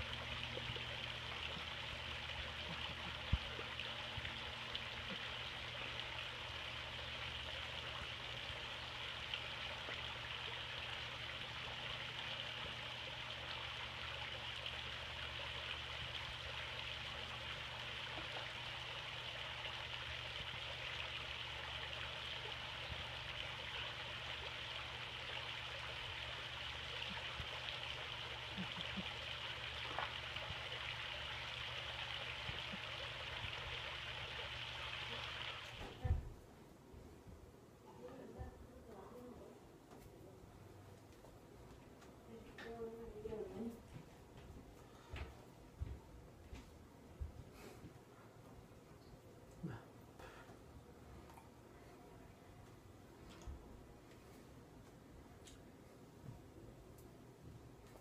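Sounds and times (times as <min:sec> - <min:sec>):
fountain splashing: 0:00.0 - 0:36.0
faint low hum: 0:00.0 - 0:58.0.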